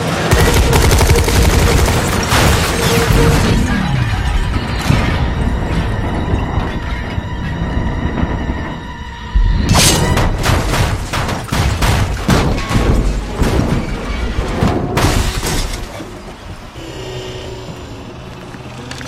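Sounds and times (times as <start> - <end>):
music: 0.3 - 14.9
rapid bangs: 9.6 - 15.7.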